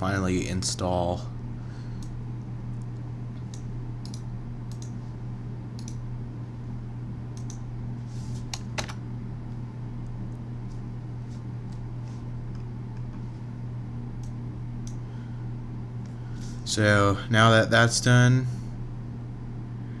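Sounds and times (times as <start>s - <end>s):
steady low hum: 0.0s - 20.0s
computer keyboard keystrokes: 2.9s - 5.0s, 5.8s - 6.0s, 7.4s - 7.6s, 8.5s - 9.0s.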